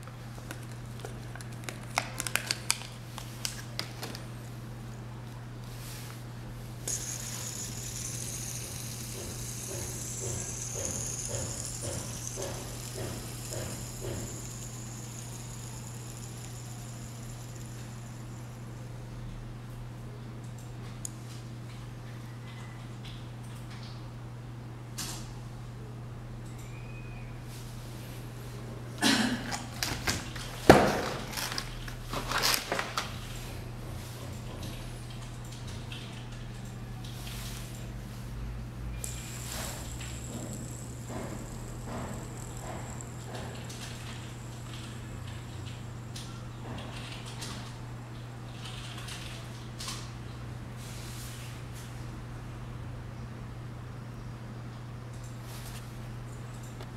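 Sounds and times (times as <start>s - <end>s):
steady low hum: 3.0s - 22.0s, 32.8s - 50.8s
fidget spinner whirring: 6.8s - 19.0s, 38.9s - 47.8s.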